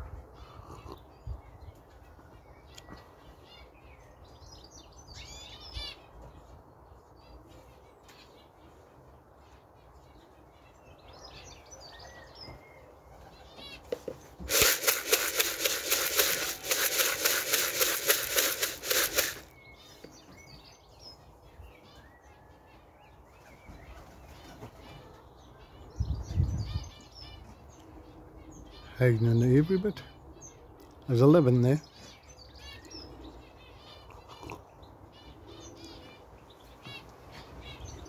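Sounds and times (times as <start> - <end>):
small birds chirping: 0.0 - 38.0
pigeon wingbeats clattering: 14.0 - 19.5.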